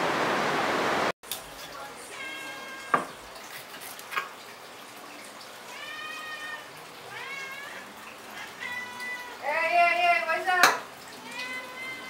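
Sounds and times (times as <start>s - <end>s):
cat meowing: 2.1s - 3.0s, 5.7s - 9.5s, 11.2s - 12.0s.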